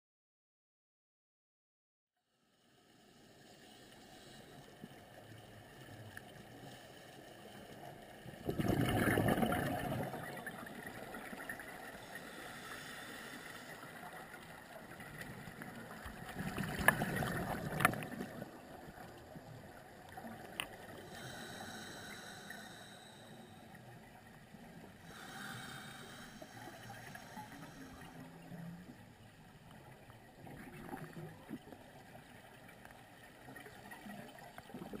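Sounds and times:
exhaled breath bubbling underwater: 8.4 - 13.9.

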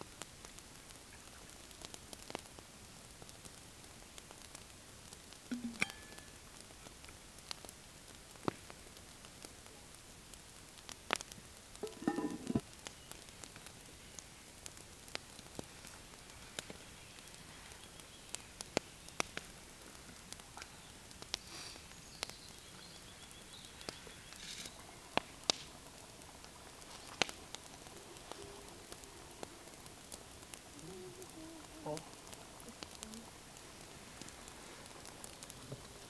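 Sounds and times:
campfire crackling: 0.0 - 36.0
pot lid clanking: 11.8 - 12.6.

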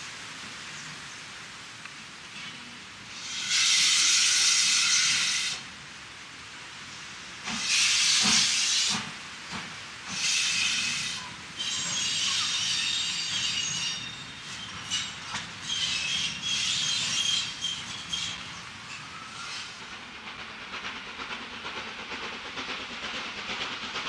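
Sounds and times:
steam locomotive hissing steam: 0.0 - 24.0
soft locomotive chuffs: 7.4 - 24.0.

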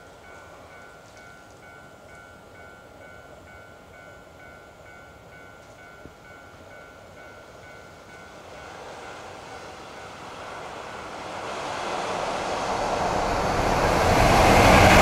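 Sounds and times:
level-crossing warning bell ringing: 0.0 - 10.3
freight train rumbling: 0.0 - 15.0.

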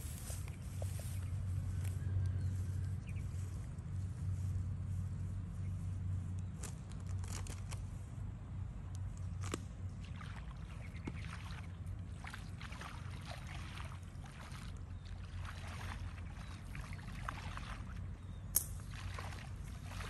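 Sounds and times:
water splashing and sloshing: 9.0 - 20.0.

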